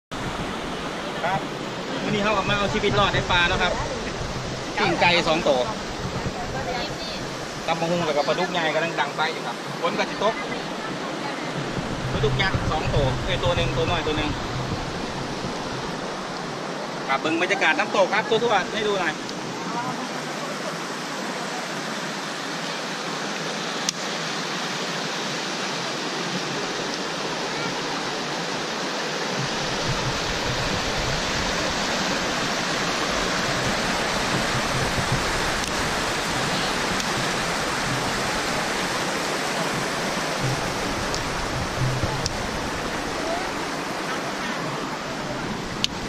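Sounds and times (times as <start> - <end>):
waterfall and rapids rushing: 0.0 - 46.0
deep rumble: 11.6 - 16.5, 39.8 - 43.2.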